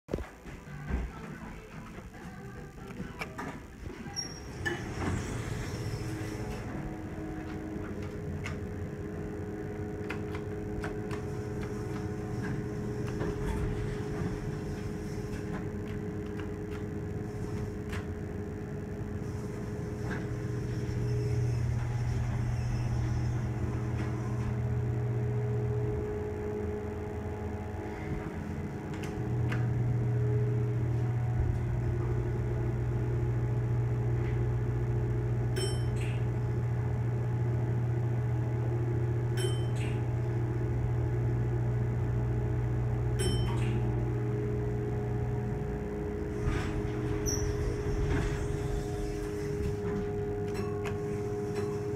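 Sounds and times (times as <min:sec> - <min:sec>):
elevator hum: 0:00.2 - 0:51.9.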